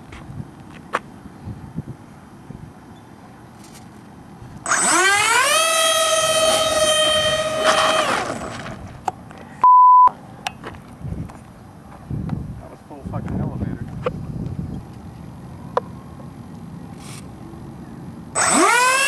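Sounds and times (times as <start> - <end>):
electric ducted fans whining: 0.0 - 19.0
censor bleep: 9.6 - 10.1.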